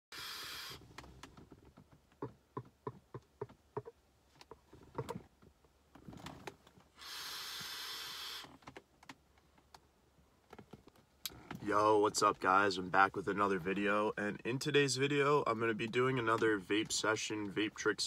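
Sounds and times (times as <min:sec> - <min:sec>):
breathy hiss of vapor: 0:00.1 - 0:00.8, 0:07.0 - 0:08.4.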